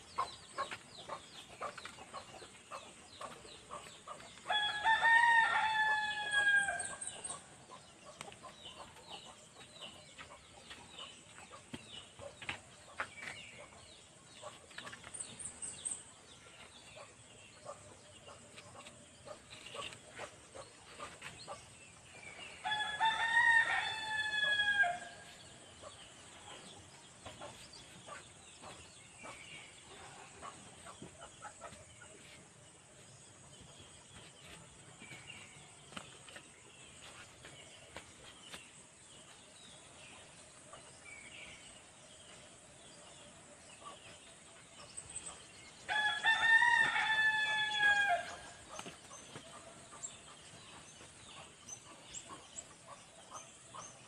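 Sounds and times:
rooster crowing: 0:04.5 - 0:06.9, 0:22.6 - 0:25.1, 0:45.9 - 0:48.3.

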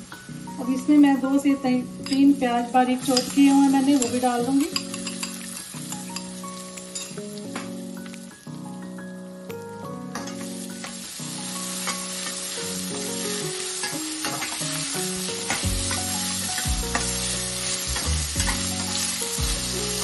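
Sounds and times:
onions sizzling in hot oil: 0:00.0 - 0:09.4, 0:10.0 - 0:20.0
spatula scraping and tapping pan: 0:03.1 - 0:07.8, 0:11.8 - 0:12.4, 0:13.8 - 0:14.8, 0:15.4 - 0:17.2.

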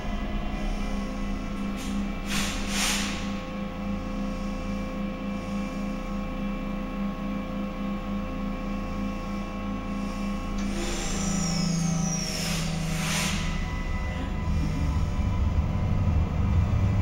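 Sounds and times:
light-rail car electrical hum: 0:00.0 - 0:17.0
short hisses: 0:02.3 - 0:03.2.

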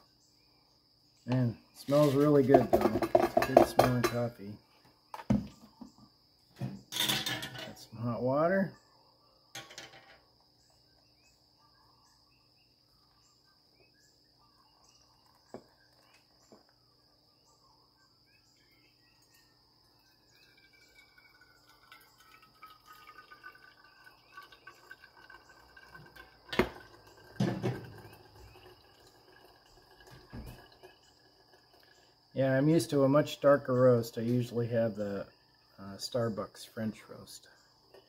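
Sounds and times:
hot water trickling onto coffee: 0:01.3 - 0:04.4, 0:14.6 - 0:17.0, 0:18.6 - 0:36.4
metal kettle knocking on stove: 0:02.5 - 0:04.2.

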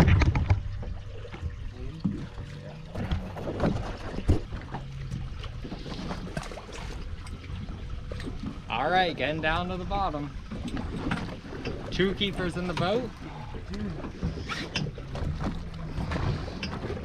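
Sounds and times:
water around boat: 0:00.0 - 0:17.0
wind: 0:00.0 - 0:17.0.

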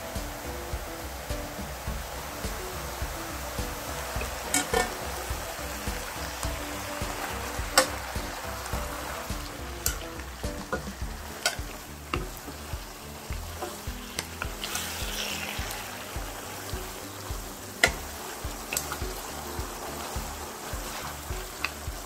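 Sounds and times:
meat sizzling in a pan: 0:00.0 - 0:22.0
wooden spatula knocking pan: 0:00.2 - 0:14.7.

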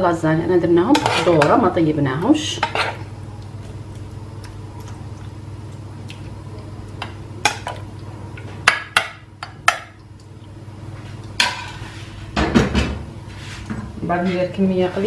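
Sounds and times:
steady low hum: 0:00.0 - 0:15.0
metal spoon scraping pans: 0:00.9 - 0:01.7.

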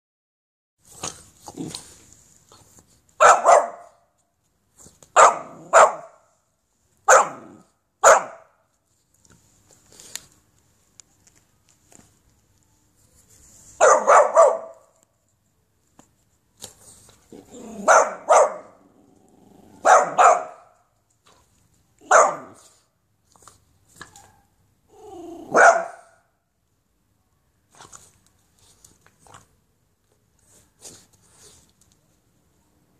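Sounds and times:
puppy barking: 0:03.2 - 0:04.1, 0:05.2 - 0:06.3, 0:07.1 - 0:08.6, 0:13.8 - 0:15.0, 0:17.7 - 0:18.8, 0:19.8 - 0:20.8, 0:22.0 - 0:22.7, 0:25.5 - 0:26.3.

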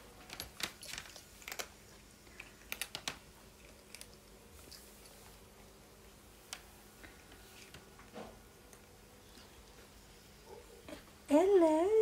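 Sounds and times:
cats crunching dry kibble: 0:00.2 - 0:05.2.

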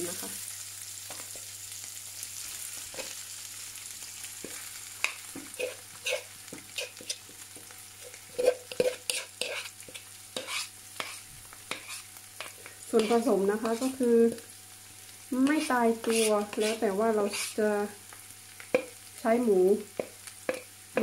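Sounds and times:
food sizzling in hot oil: 0:00.0 - 0:21.0
utensil scraping and clinking on pan: 0:04.4 - 0:07.3, 0:08.0 - 0:13.9, 0:16.0 - 0:17.6.

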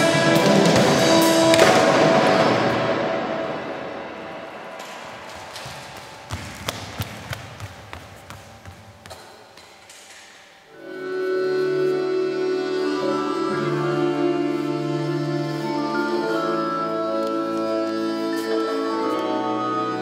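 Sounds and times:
accordion chord: 0:00.0 - 0:04.5, 0:10.8 - 0:20.0.

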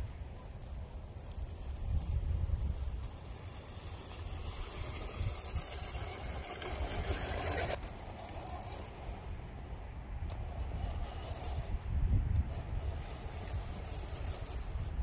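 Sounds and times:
wind rumble on microphone: 0:00.0 - 0:07.8, 0:08.7 - 0:15.0
rc car driving over rock: 0:00.0 - 0:15.0
rough scraping: 0:00.0 - 0:15.0.

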